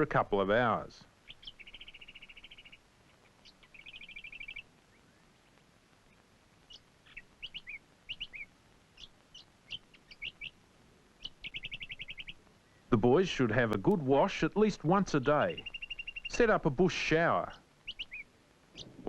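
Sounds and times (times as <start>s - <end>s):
bird trills: 1.2s - 5.2s, 6.1s - 10.6s, 11.2s - 12.9s, 15.5s - 16.4s, 17.8s - 19.0s
bird chirps and whistles: 3.7s - 4.6s, 7.1s - 8.5s, 11.4s - 12.4s, 15.6s - 16.3s, 17.8s - 18.2s.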